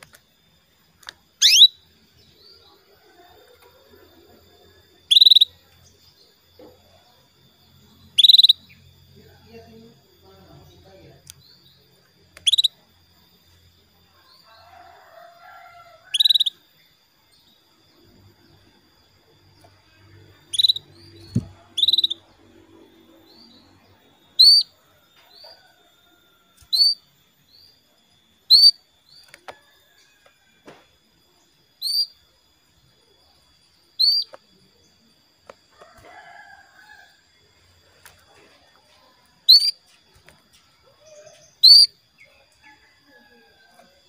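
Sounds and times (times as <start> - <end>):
canary calls: 1.4 - 1.9, 5.0 - 5.6, 8.0 - 8.8, 12.4 - 12.8, 16.0 - 16.7, 20.4 - 22.4, 23.3 - 24.8, 26.6 - 27.1, 28.5 - 28.9, 31.8 - 32.2, 34.0 - 34.4, 39.5 - 39.9, 40.9 - 42.3.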